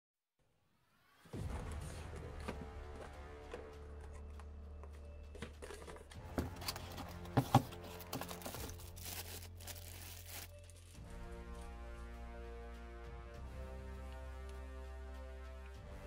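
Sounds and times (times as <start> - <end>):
quiet background music: 0.5 - 16.0
cardboard box handled and opened: 5.3 - 10.5
plastic bag crinkling: 6.6 - 11.0.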